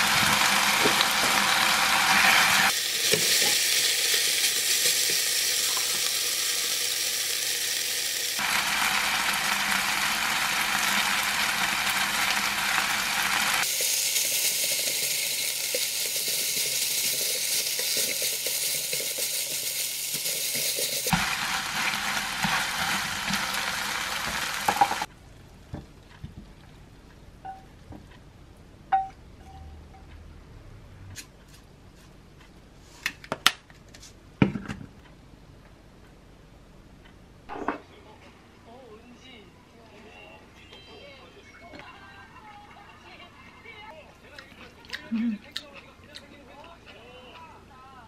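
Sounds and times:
food sizzling in a frying pan: 0.0s - 25.1s.

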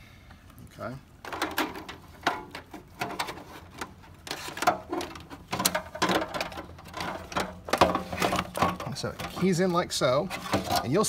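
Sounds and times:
wiring loom rustling: 1.2s - 11.0s
plastic fuel pump basket knocking: 4.3s - 9.5s.

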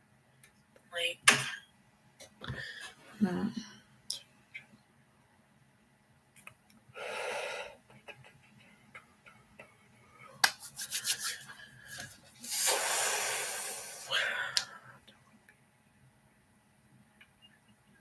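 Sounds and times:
objects rubbing on desk: 10.5s - 12.8s.

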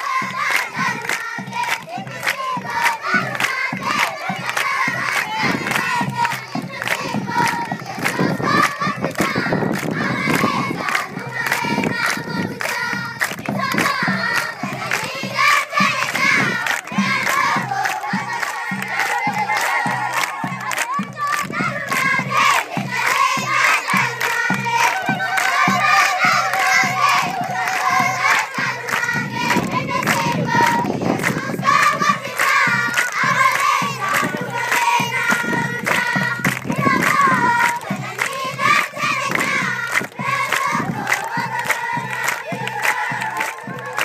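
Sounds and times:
children singing: 0.0s - 44.0s
hands clapping in rhythm: 0.0s - 44.0s.

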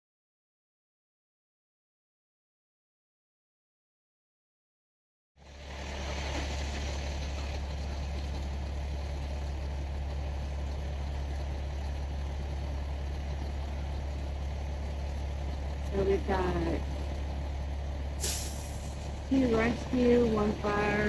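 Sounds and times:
fire truck engines idling: 5.4s - 21.0s.

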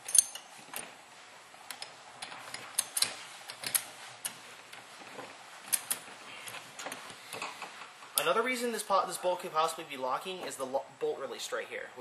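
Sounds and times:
small metal parts clicking: 0.0s - 0.8s, 1.7s - 4.4s
faint steady background noise: 0.0s - 12.0s.

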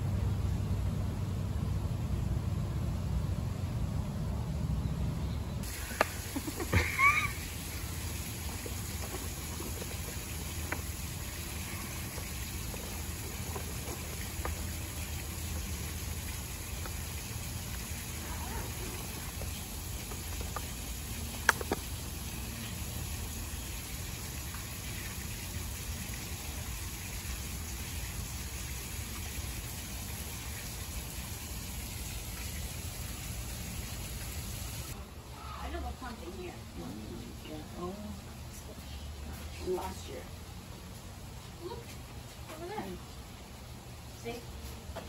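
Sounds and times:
small waterfall rushing: 5.6s - 35.0s.

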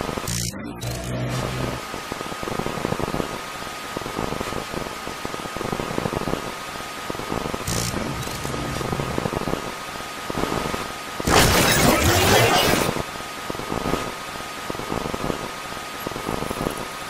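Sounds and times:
harsh static burst: 0.0s - 17.0s
tape hiss: 0.0s - 17.0s.

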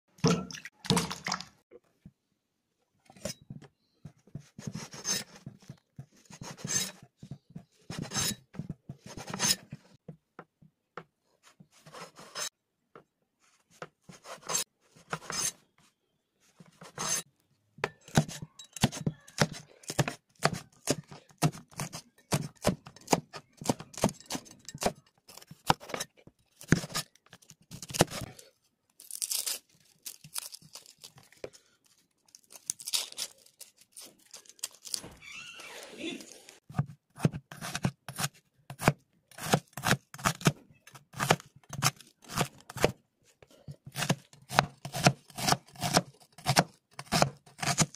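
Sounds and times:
knife cutting through bread: 4.3s - 10.0s, 11.6s - 12.5s, 13.7s - 15.7s, 16.6s - 17.3s, 17.9s - 28.4s, 36.7s - 47.9s
onion skin crackling: 28.9s - 31.4s, 32.1s - 35.1s.

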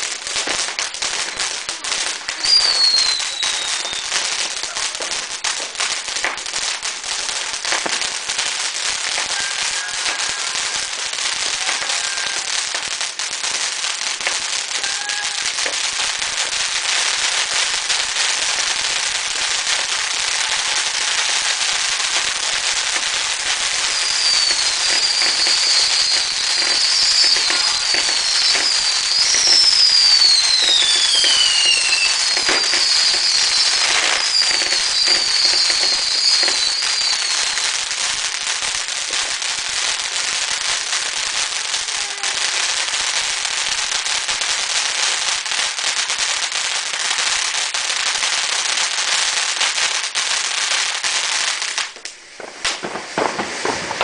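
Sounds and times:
descending firework whistles: 0.0s - 5.5s, 8.7s - 12.6s, 17.9s - 39.4s, 51.5s - 54.0s
firework fountain crackling: 0.0s - 54.0s.

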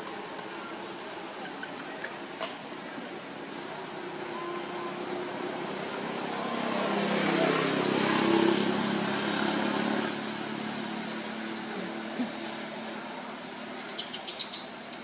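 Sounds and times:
vehicle engine humming past: 0.0s - 15.0s.

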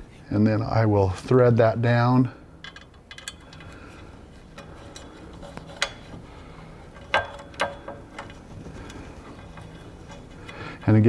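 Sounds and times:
small metal clicks of bolt threading: 2.6s - 6.2s, 6.9s - 10.9s.

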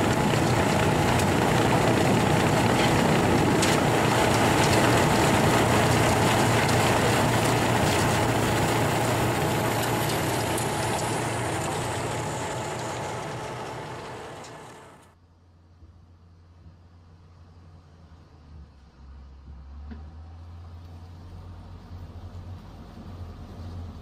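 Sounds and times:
snow blower churning snow: 0.0s - 15.1s.

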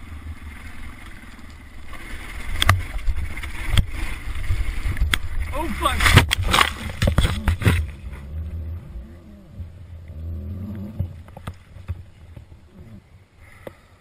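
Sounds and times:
low rumble: 0.0s - 13.3s.

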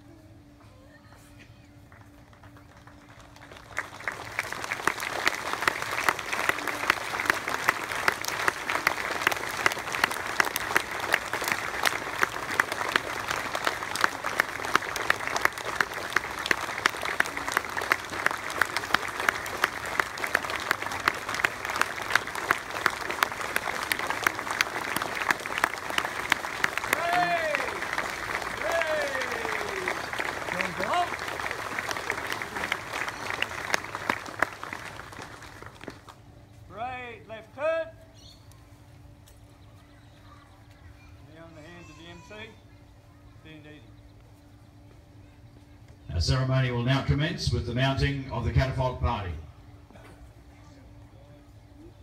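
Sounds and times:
crowd applauding: 1.9s - 36.2s.

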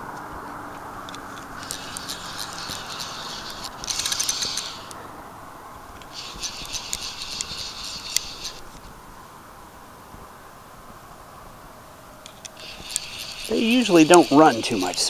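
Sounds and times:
fishing reel drag ratcheting: 1.1s - 5.0s, 6.0s - 8.8s, 12.3s - 15.0s.

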